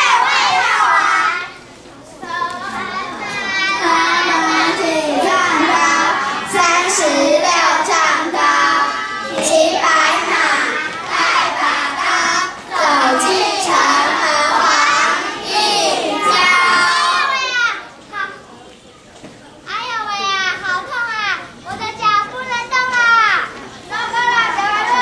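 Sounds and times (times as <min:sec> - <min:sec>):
children singing together: 0:00.0 - 0:17.6.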